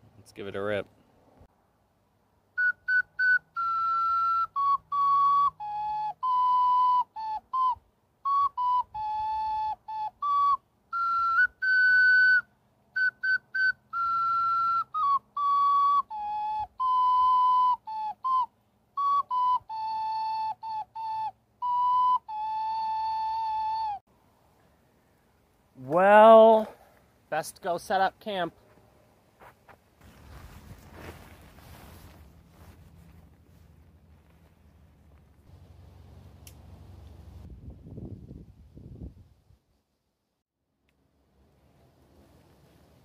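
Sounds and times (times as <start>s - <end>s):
ocarina melody: 2.6s - 24.0s.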